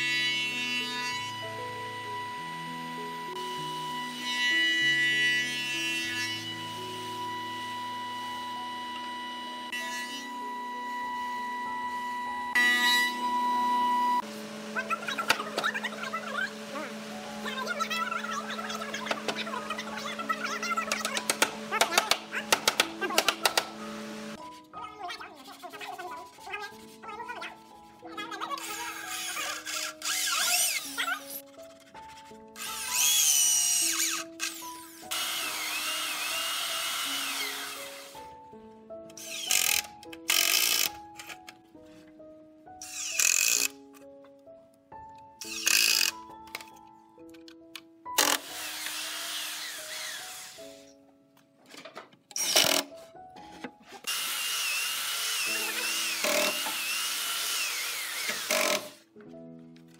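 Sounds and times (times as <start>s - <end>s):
background music: 0.0s - 59.9s
cordless drill driving screws: 28.6s - 31.0s, 32.6s - 38.2s, 39.1s - 41.0s, 42.8s - 43.7s, 45.4s - 46.2s, 48.1s - 50.7s, 52.4s - 52.9s, 54.1s - 59.0s.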